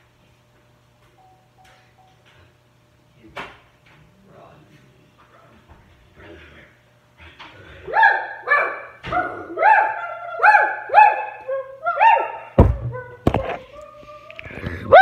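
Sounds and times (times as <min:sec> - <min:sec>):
high-pitched yelps: 0:07.9 - 0:12.5
heavy thumps: 0:12.6 - 0:13.6.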